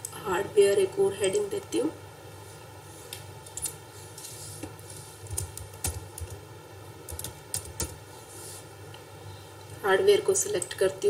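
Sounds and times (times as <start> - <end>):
faint steady hum: 0.0 - 11.0
keyboard keys clicking: 5.3 - 6.4, 7.1 - 8.0.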